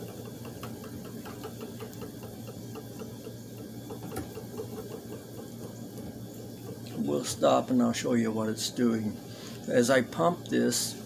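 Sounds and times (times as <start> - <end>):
spinning wheel ticking: 0.0 - 7.4.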